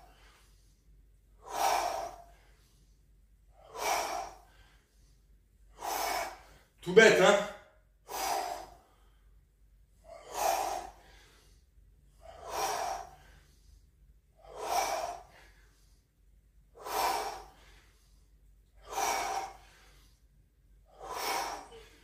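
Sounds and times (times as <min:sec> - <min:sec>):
man exhaling forcefully: 0:01.4 - 0:02.6, 0:03.6 - 0:04.8, 0:05.7 - 0:06.7, 0:08.0 - 0:09.2, 0:10.1 - 0:11.5, 0:12.2 - 0:13.6, 0:14.4 - 0:15.7, 0:16.8 - 0:17.8, 0:18.8 - 0:20.1, 0:20.9 - 0:22.0.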